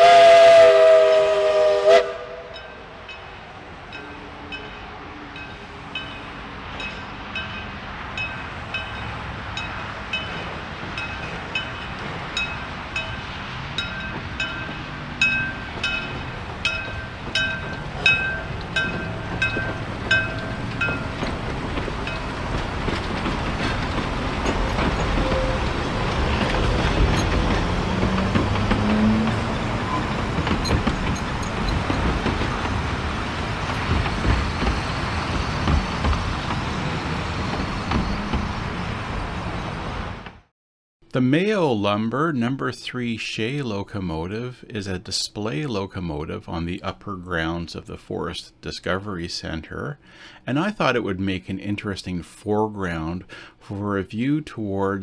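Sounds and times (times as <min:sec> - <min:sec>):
train running gear and wheels: 0:00.0 - 0:40.5
locomotive bell ringing: 0:02.5 - 0:35.6.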